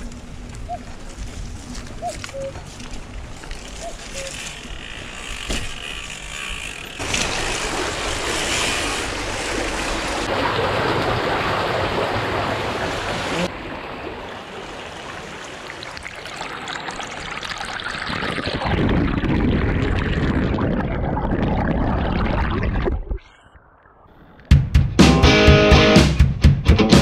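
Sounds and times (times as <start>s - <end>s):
bicycle tyres splashing through puddles: 0.0s - 12.2s.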